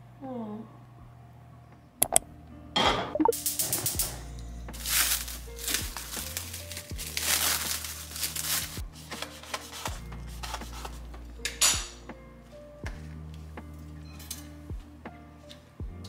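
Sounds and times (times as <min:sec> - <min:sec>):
soft background music: 0:00.0 - 0:16.0
plastic wrap crinkling: 0:04.8 - 0:09.9.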